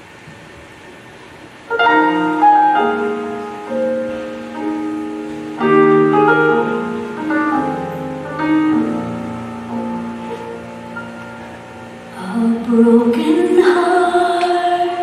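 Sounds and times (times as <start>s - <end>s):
piano chords: 1.6s - 15.0s.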